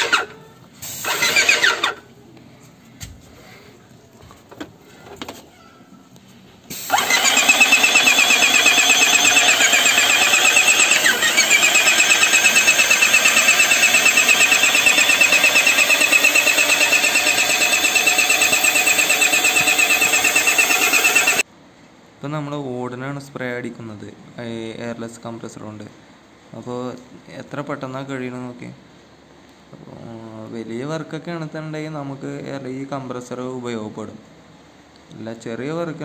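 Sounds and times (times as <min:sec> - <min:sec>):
paint sprayer pump pulsing: 0:00.0 - 0:02.0, 0:06.7 - 0:21.4.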